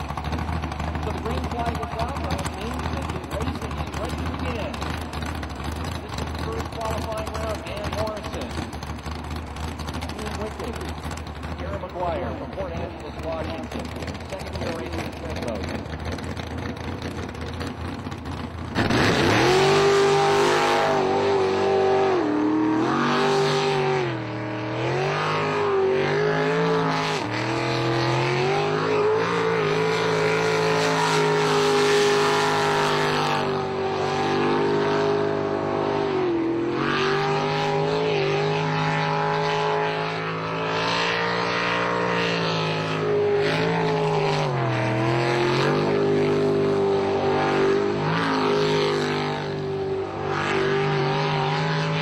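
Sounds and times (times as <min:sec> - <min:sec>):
jet boat engine revving: 0:00.0 - 0:52.0.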